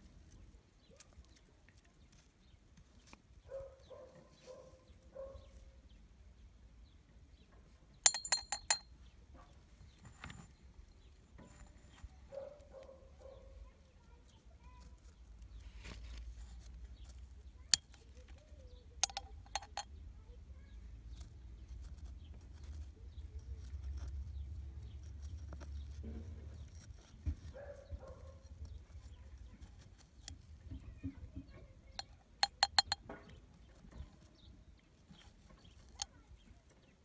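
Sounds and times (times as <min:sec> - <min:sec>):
spoon clinking on glass jar: 0:08.1 - 0:08.8, 0:19.0 - 0:19.9, 0:32.0 - 0:33.0
metal spoon scraping soil: 0:09.8 - 0:20.1, 0:21.0 - 0:37.0.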